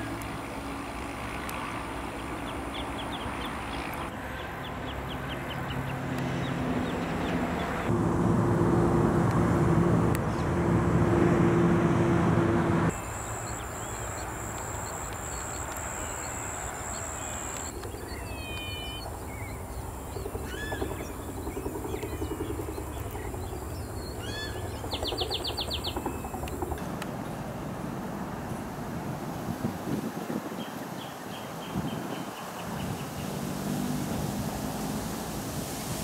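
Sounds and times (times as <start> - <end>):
loud engine hum: 0.0 - 18.4
birds chirping and whistling: 13.2 - 19.7.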